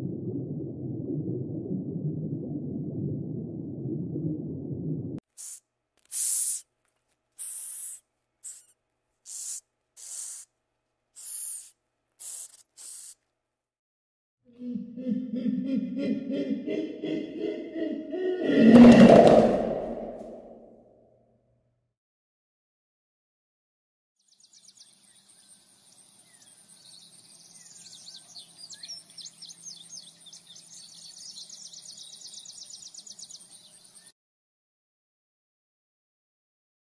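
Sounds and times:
cockroaches hissing: 5.4s - 6.6s, 7.4s - 8.7s, 9.3s - 10.5s, 11.2s - 13.2s
high fast insect trill: 7.4s - 8.7s, 9.3s - 10.5s, 11.2s - 13.2s.

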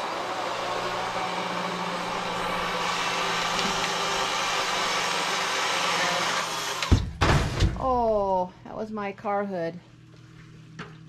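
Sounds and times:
chainsaw cutting tree limb: 2.0s - 7.0s.

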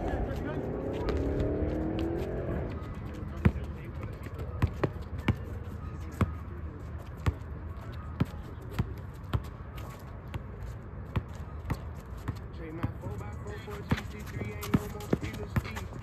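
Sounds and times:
basketball bouncing on court: 2.8s - 5.5s, 8.2s - 9.5s, 13.7s - 15.8s.

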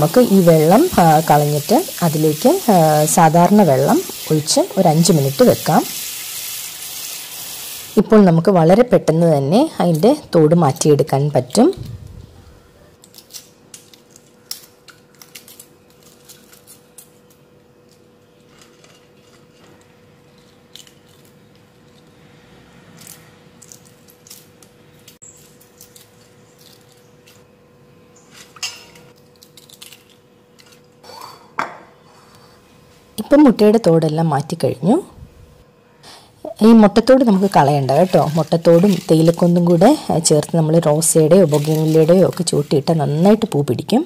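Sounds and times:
faint steady hum: 0.0s - 44.0s.

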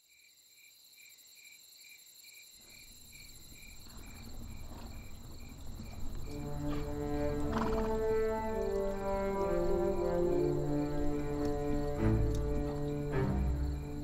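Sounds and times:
crickets chirping: 0.0s - 14.0s
low rumble: 3.3s - 14.0s.

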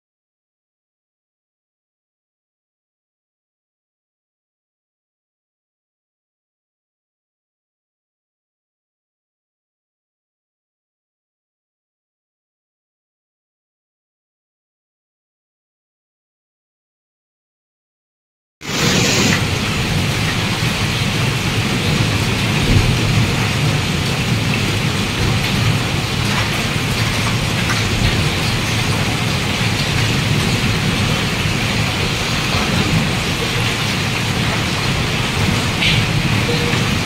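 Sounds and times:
hail and rain pelting: 18.7s - 37.0s.

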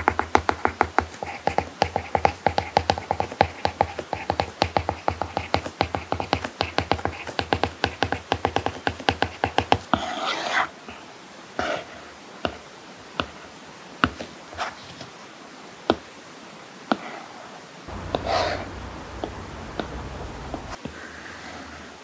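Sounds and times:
stylus scratchy stroke: 17.9s - 20.0s
stylus tapping on screen: 17.9s - 20.8s.

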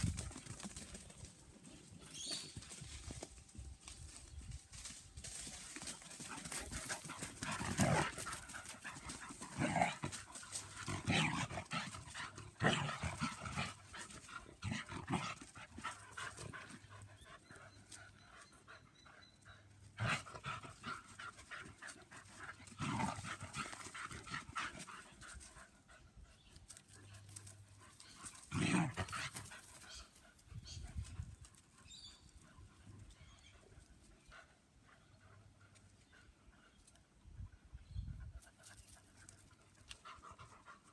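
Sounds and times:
dogs play-fighting: 5.8s - 37.2s.

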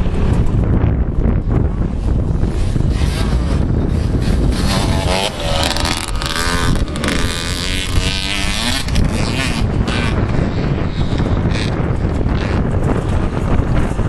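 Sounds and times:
wind rumbling on microphone: 0.0s - 14.0s
motocross bike engine revving: 2.2s - 13.4s.

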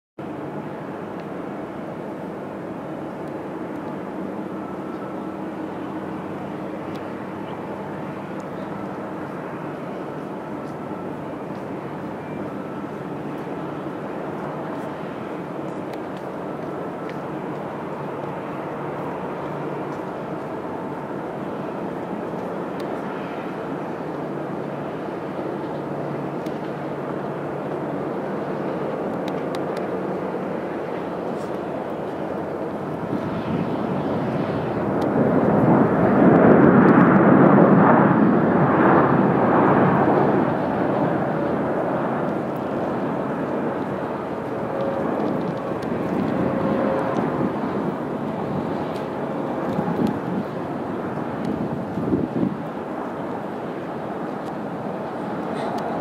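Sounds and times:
jet engines humming and hissing: 0.2s - 56.0s.

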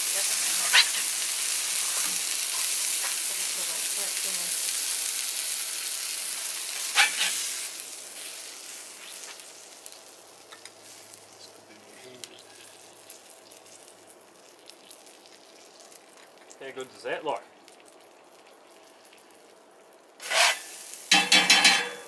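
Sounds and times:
burger patty sizzling: 0.0s - 22.0s
spatula scraping griddle: 6.8s - 7.6s, 20.2s - 22.0s.

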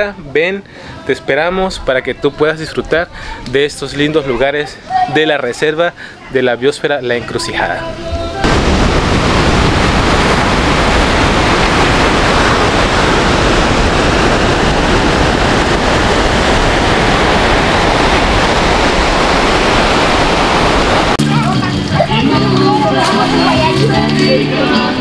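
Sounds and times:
wind on microphone: 8.0s - 21.2s
surf breaking on beach: 8.4s - 25.0s.

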